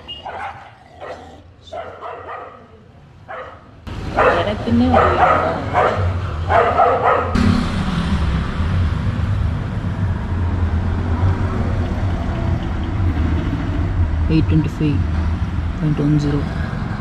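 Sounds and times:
dog barking: 0.0s - 7.4s.

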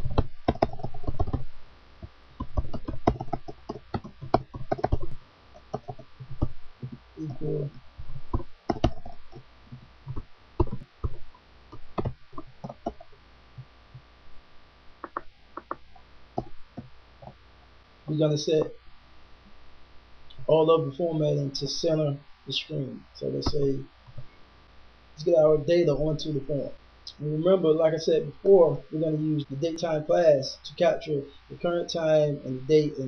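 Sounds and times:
faint electrical hum: 0.0s - 33.0s.

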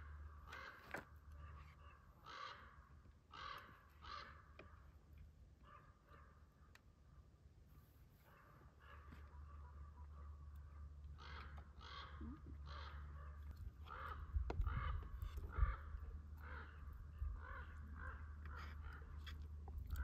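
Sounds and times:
crow cawing: 0.0s - 4.8s, 11.1s - 19.3s
steady low rumble: 10.2s - 20.0s.

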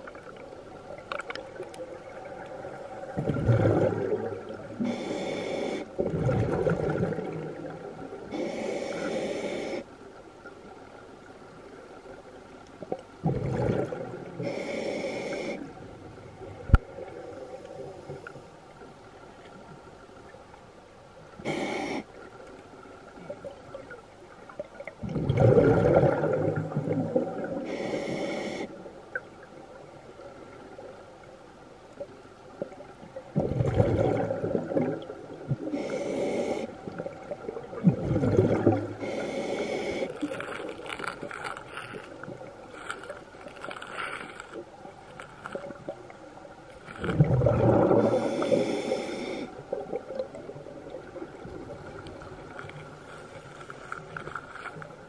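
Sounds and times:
bubbling exhalations underwater: 3.2s - 4.6s, 6.0s - 7.7s, 13.2s - 14.2s, 25.0s - 27.6s, 33.4s - 35.8s, 37.1s - 39.1s, 46.8s - 48.7s.

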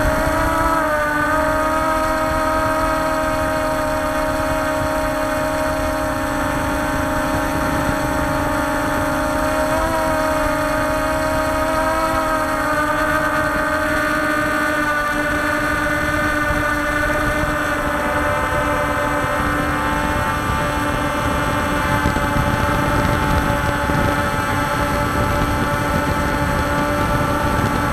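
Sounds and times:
drone motors whining: 0.0s - 27.9s
low wind rumble: 0.0s - 27.9s.

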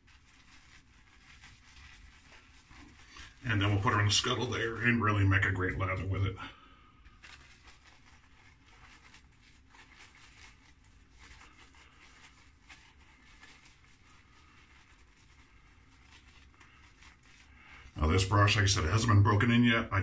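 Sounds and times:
shaving brush scratching on soap: 0.0s - 6.4s, 7.1s - 19.7s.

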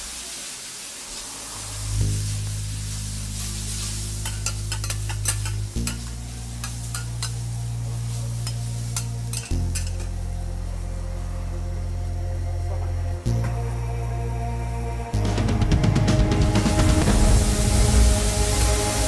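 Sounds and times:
food sizzling: 0.0s - 12.6s, 16.5s - 19.0s
background music with low notes: 1.8s - 19.0s
metal spatulas clacking on griddle: 4.2s - 7.4s, 8.4s - 10.1s.

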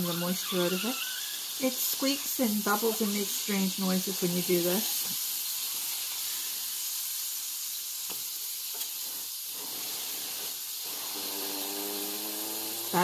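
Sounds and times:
mushroom sizzling in frying pan: 0.0s - 13.0s.

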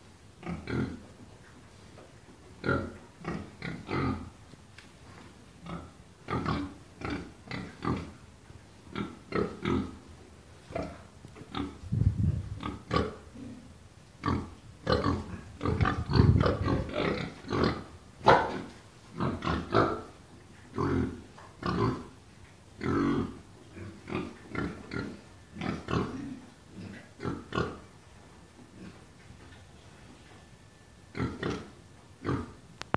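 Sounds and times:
pigs grunting and oinking: 0.4s - 1.1s, 2.6s - 4.4s, 5.6s - 8.2s, 8.9s - 10.1s, 10.7s - 11.8s, 12.6s - 22.2s, 22.8s - 27.9s, 31.1s - 32.6s.

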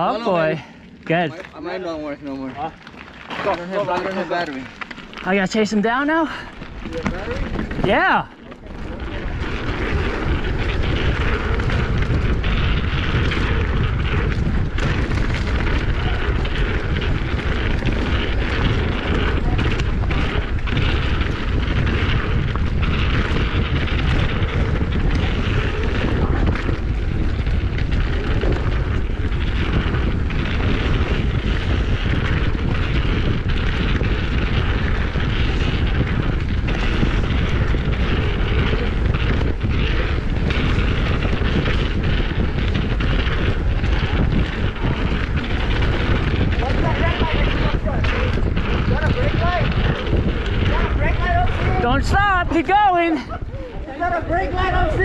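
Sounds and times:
bike rattles and knocks: 0.0s - 55.0s
tyre noise on dirt: 0.0s - 55.0s
wind rushing over microphone: 0.0s - 55.0s.

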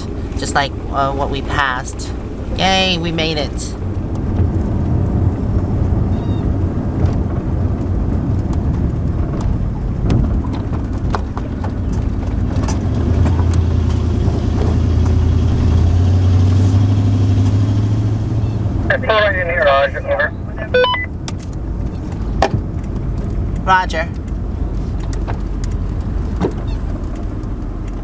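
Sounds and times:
engine and road drone: 0.0s - 28.0s
knocks and rattles over tracks: 6.9s - 15.7s.

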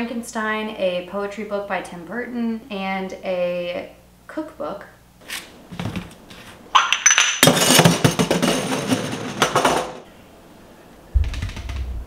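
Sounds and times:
low thump: 11.2s - 12.0s.

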